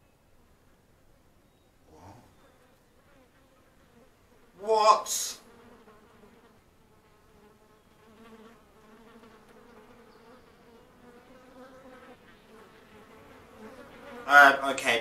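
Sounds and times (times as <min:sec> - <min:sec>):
flies buzzing: 0:00.0 - 0:15.0.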